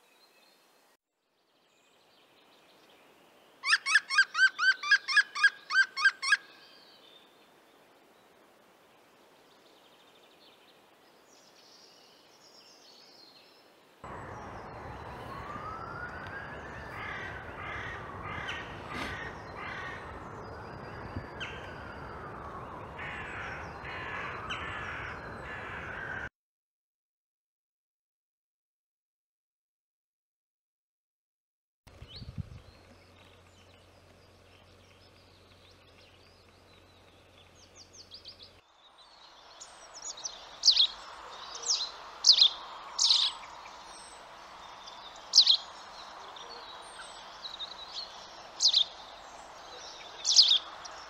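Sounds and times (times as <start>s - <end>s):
rushing woodland background: 0.0s - 26.3s, 31.9s - 51.0s
woodpecker laughing call: 3.6s - 6.4s, 16.7s - 20.2s
bird calls: 3.6s - 7.0s, 14.1s - 26.3s, 31.9s - 51.0s.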